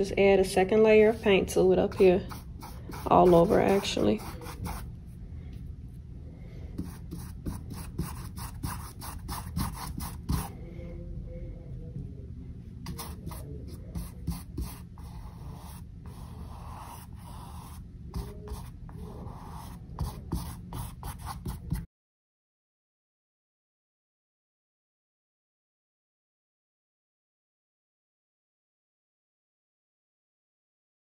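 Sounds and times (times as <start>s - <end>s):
paintbrush scrubbing on canvas: 1.1s - 4.8s.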